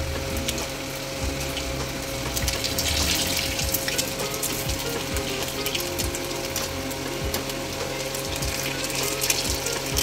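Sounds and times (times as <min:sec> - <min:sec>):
batter deep-frying in oil: 0:00.0 - 0:10.0
steady low hum: 0:00.0 - 0:10.0.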